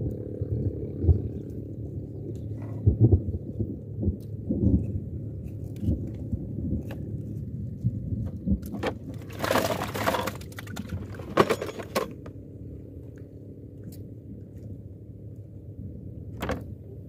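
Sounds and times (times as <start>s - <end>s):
low steady rumble: 0.0s - 17.0s
fishing gear clattering: 8.8s - 12.3s.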